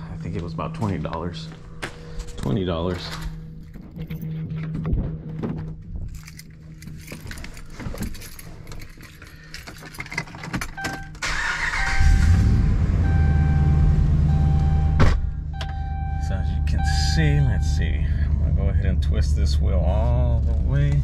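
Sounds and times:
door handling: 0:03.2 - 0:11.2
engine cranking and idling: 0:04.3 - 0:14.9
keys jangling: 0:06.0 - 0:11.2.

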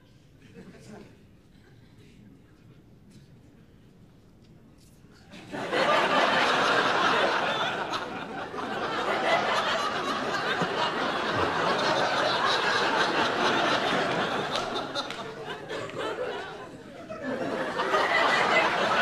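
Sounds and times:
studio audience laughing: 0:05.3 - 0:19.0.

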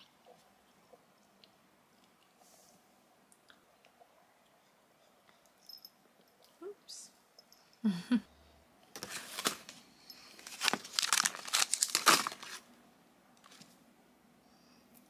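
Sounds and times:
plastic wrapper crinkling: 0:10.3 - 0:12.7.

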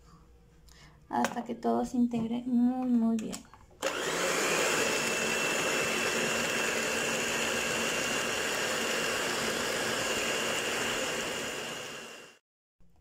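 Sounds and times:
electric hand mixer whining: 0:03.8 - 0:12.4.

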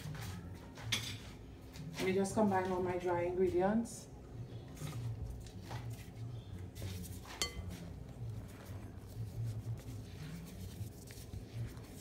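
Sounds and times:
spatula stirring flour in glass bowl: 0:05.6 - 0:12.0
glass bowl clinking: 0:07.3 - 0:07.8.

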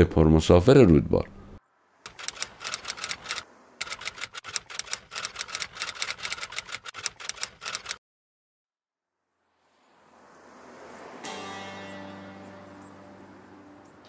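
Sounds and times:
typewriter key clacks: 0:02.1 - 0:08.0.

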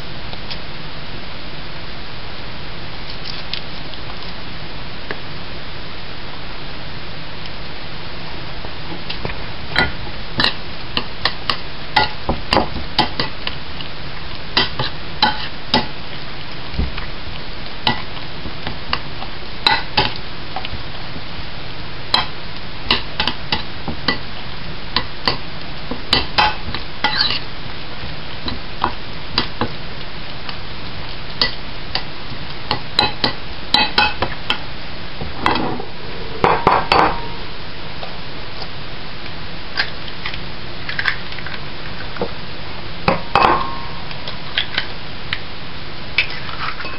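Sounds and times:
steady hiss: 0:00.0 - 0:46.9
spoon clinking and scraping bowl: 0:14.6 - 0:15.9, 0:26.1 - 0:27.4.

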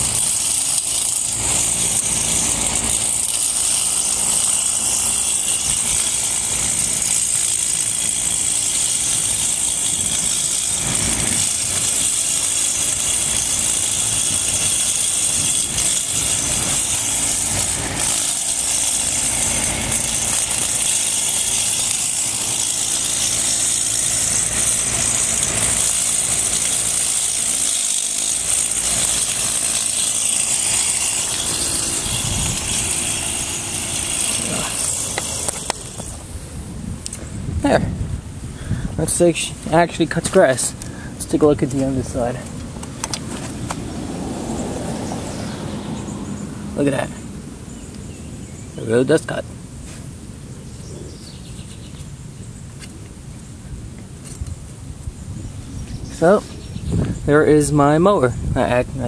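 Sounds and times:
electric motor whining: 0:00.0 - 0:48.8
blade cutting grass: 0:00.0 - 0:50.2.

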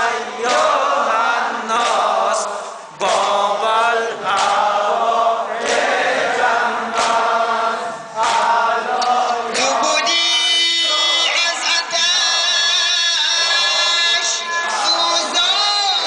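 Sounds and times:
man chanting into a microphone: 0:01.1 - 0:04.4, 0:09.5 - 0:16.0.

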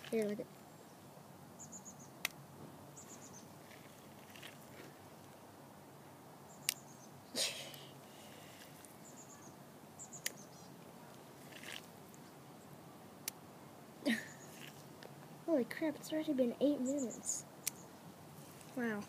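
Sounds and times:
short rustle: 0:02.6 - 0:05.4, 0:18.3 - 0:19.0.

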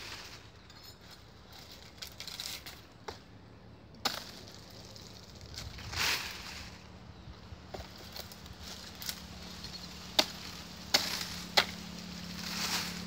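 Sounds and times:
dry plant material crackling: 0:00.0 - 0:03.4, 0:04.0 - 0:13.0
knife chopping tree trunk: 0:10.1 - 0:11.8.

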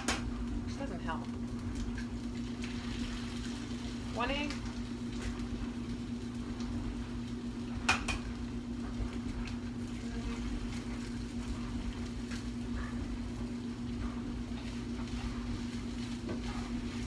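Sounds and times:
egg cracking knocks: 0:00.0 - 0:00.3, 0:07.8 - 0:08.4
kitchen appliance hum: 0:00.0 - 0:17.0.

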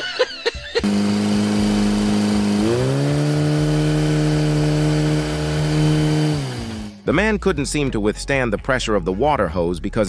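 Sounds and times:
engine revving: 0:00.8 - 0:07.0.

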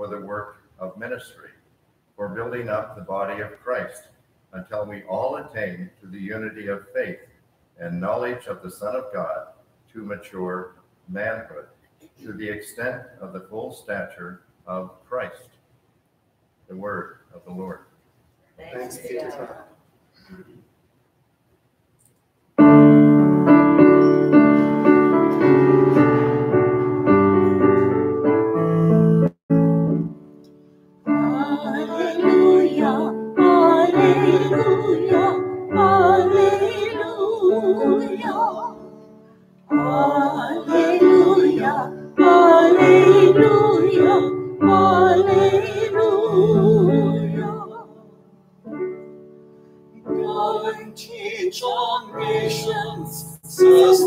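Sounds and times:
keyboard playing chords: 0:22.6 - 0:31.5
person singing: 0:31.1 - 0:39.1, 0:39.7 - 0:48.1, 0:50.0 - 0:54.0.

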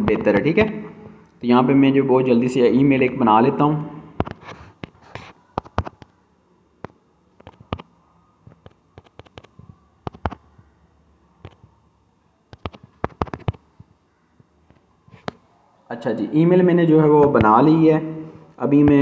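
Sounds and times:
smartphone keyboard typing clicks: 0:08.5 - 0:10.4, 0:11.4 - 0:11.7, 0:12.5 - 0:13.6.

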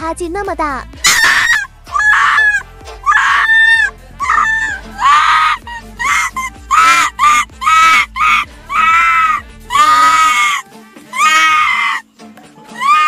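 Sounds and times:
fox screaming yelps: 0:01.0 - 0:12.0, 0:12.7 - 0:13.0.

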